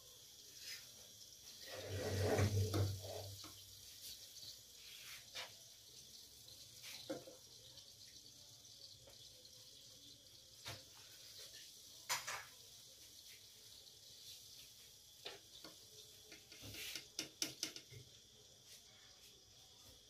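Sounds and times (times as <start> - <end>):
faint steady hiss: 0.0 - 20.0
faint clicks and knocks: 15.2 - 18.1.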